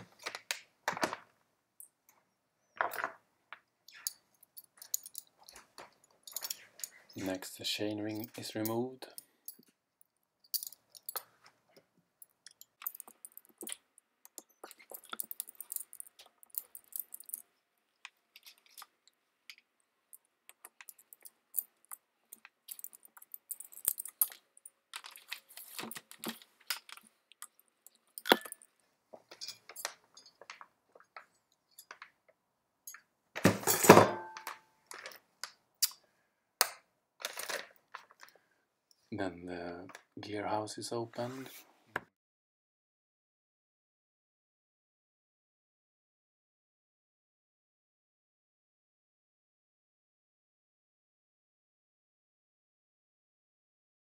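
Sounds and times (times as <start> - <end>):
metallic clicks and rattles of tools: 3.9 - 7.2, 8.1 - 9.8, 10.4 - 11.3, 12.2 - 17.5, 18.3 - 28.7, 29.3 - 30.7
metal parts clattering: 6.2 - 7.2, 14.7 - 17.4, 20.8 - 27.1, 28.1 - 28.6.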